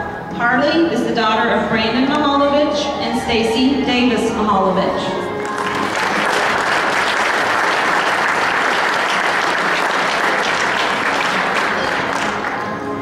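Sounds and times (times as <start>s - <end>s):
background music: 0.0s - 13.0s
audience applauding: 5.4s - 12.8s.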